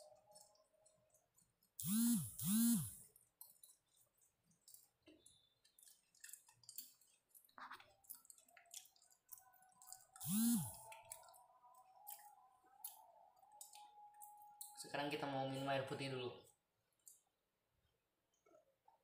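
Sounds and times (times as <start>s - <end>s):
person chewing: 0.0s - 14.8s
closed-mouth hums: 10.2s - 11.3s.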